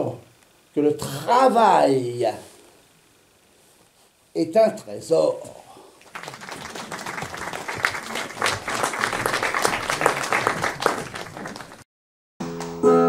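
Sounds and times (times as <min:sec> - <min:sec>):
audience applauding: 0:06.0 - 0:11.8.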